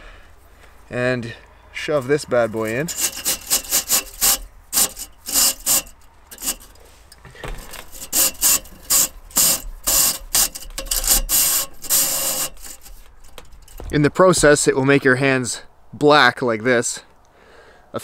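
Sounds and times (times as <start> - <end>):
brush scraping inside metal pipe: 1.9 - 14.0.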